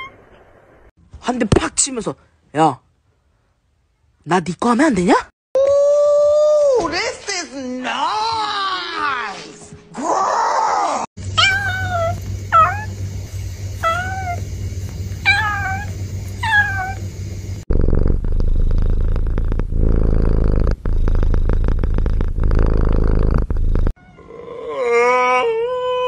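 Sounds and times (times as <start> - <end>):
kitten meowing: 11.4 - 12.9, 13.8 - 14.4, 15.2 - 17.0
cat purring: 11.4 - 24.0.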